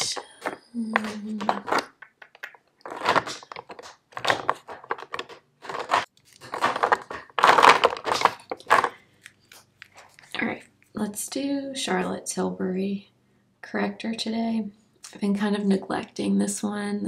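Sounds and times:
makeup containers rattling in drawer: 1.4 - 8.9.

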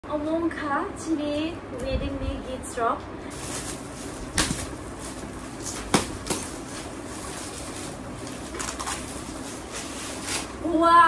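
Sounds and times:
gift-wrap paper rustling: 3.3 - 10.8.

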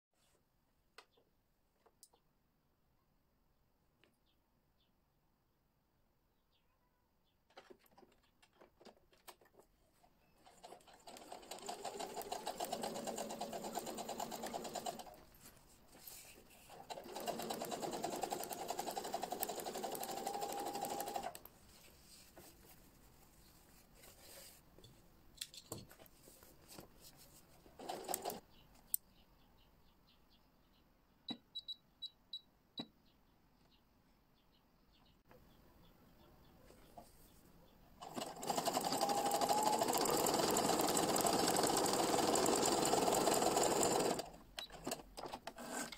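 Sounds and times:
sewing machine running: 10.6 - 15.2, 16.7 - 21.4, 27.8 - 28.4, 38.0 - 44.3.

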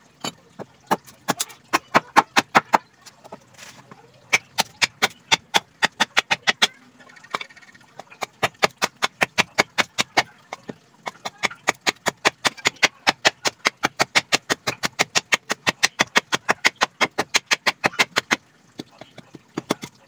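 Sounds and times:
machete chopping wood: 11.1 - 18.4.

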